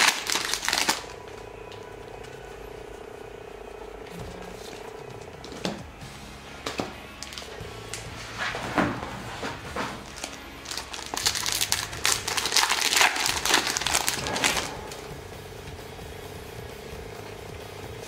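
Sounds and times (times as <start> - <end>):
foil wrapper crinkling: 0.0 - 1.9, 7.2 - 8.0, 10.0 - 15.1.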